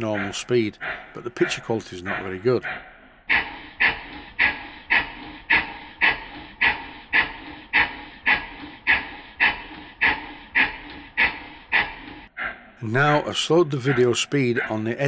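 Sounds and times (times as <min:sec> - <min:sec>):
steam engine exhaust cracks: 0:03.3 - 0:12.3.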